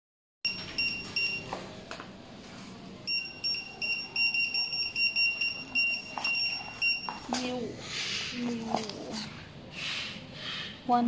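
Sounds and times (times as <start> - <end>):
scanner beeping: 0.5 - 1.6, 3.0 - 7.6.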